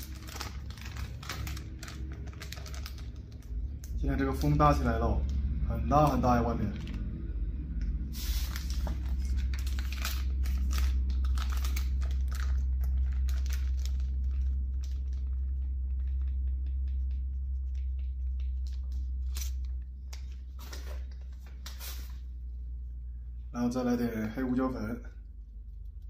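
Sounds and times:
plastic packaging crinkling: 0.0s - 4.8s, 8.2s - 15.6s
steady low rumble: 0.0s - 26.0s.

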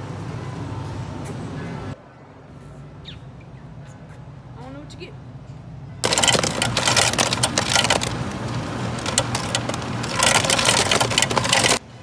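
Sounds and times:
ice cubes clattering into cup: 6.0s - 11.8s.

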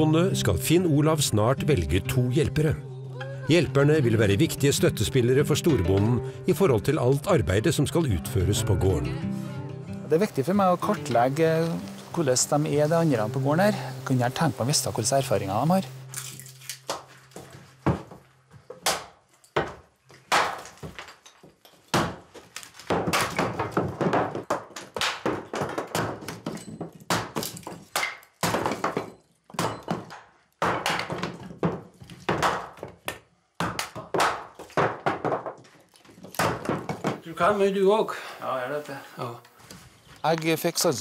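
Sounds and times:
axe chopping firewood: 16.9s - 21.1s, 21.9s - 35.6s, 36.2s - 37.2s.

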